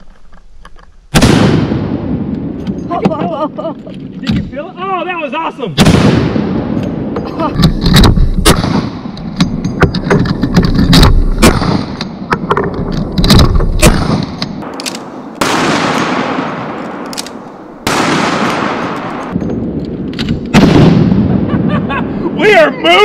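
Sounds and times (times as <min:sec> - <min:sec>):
rifle shots echoing: 0:01.1 - 0:02.7, 0:05.8 - 0:09.6, 0:10.9 - 0:12.2, 0:13.7 - 0:21.5.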